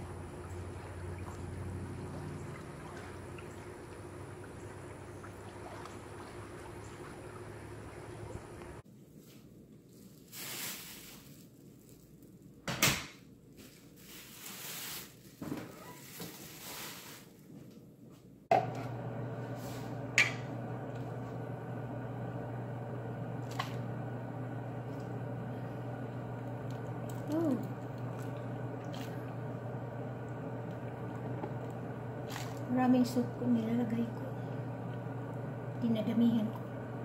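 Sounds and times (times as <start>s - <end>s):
steady hum: 18.5s - 37.0s.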